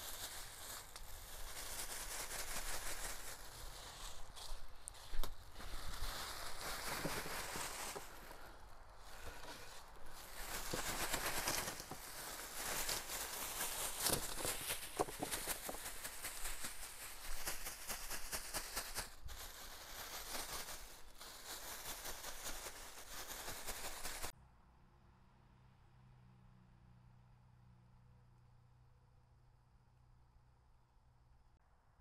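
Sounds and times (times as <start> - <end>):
footsteps in dry leaves: 0.0 - 24.3
plastic bag crinkling: 0.0 - 24.3.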